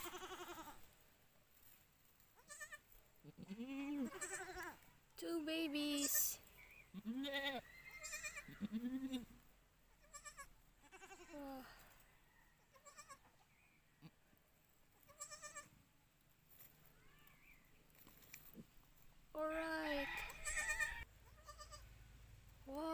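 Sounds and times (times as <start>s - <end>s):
goats bleating: 0.0s - 0.8s, 2.4s - 4.8s, 6.9s - 9.3s, 10.0s - 11.3s, 15.1s - 15.7s, 20.0s - 21.8s.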